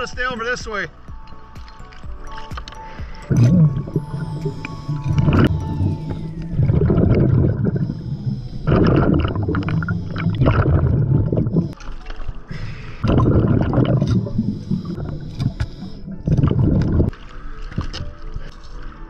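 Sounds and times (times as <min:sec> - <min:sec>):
air bubbling underwater: 0:03.2 - 0:11.8, 0:12.5 - 0:17.1.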